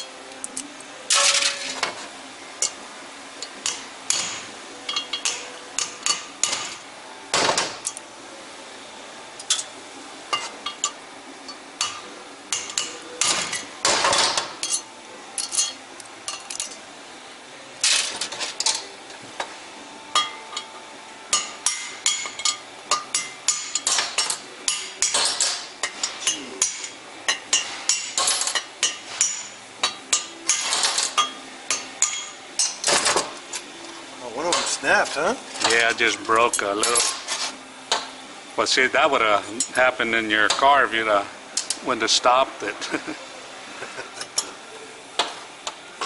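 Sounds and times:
hammer strikes on metal: 3.6s - 8.0s, 21.3s - 33.3s.

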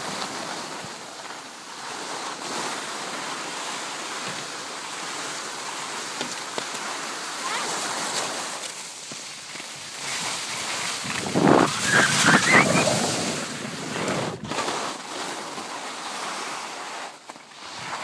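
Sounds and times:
skis scraping over snow: 0.0s - 18.0s
wind on microphone: 11.0s - 14.6s.

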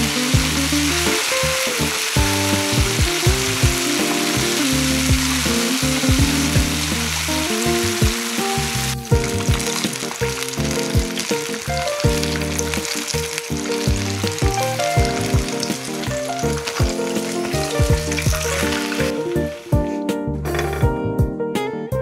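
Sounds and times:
chicken wings deep-frying in oil: 0.0s - 19.8s
background music with bass and piano: 0.0s - 22.0s.

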